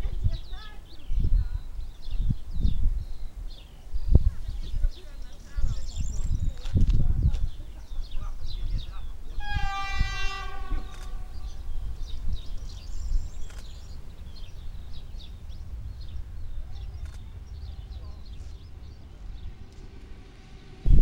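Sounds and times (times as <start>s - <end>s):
low rumble: 5.5s - 21.0s
railcar horn: 9.4s - 11.7s
short bird chirps: 10.4s - 14.8s.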